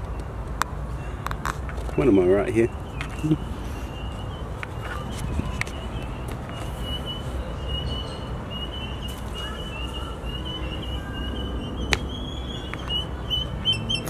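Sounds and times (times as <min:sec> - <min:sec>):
high wavering chirping tone: 0:02.0 - 0:14.0
microphone handling rumble: 0:04.1 - 0:06.6.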